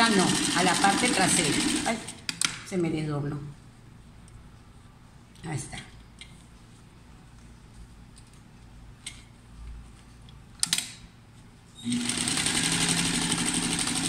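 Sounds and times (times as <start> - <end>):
sewing machine stitching: 11.8 - 14.0.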